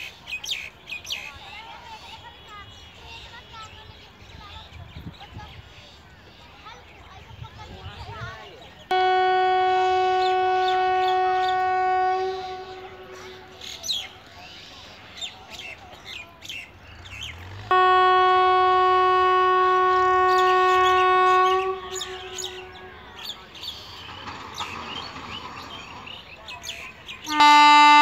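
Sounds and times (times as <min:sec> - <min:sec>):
birds chirping: 0:00.0 - 0:28.0
locomotive horn blasts: 0:08.9 - 0:14.1, 0:17.4 - 0:23.5, 0:27.2 - 0:28.0.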